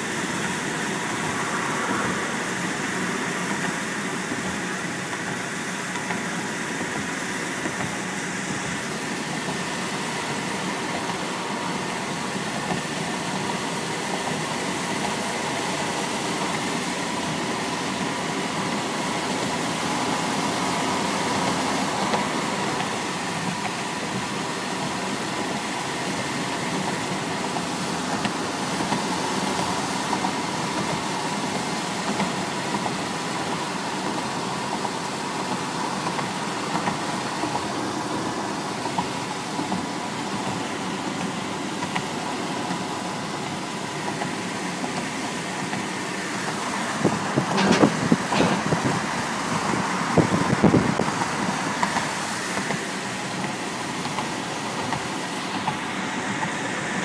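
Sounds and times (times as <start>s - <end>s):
road and tyre noise: 0.0s - 57.0s
short loud thumps: 47.4s - 49.0s.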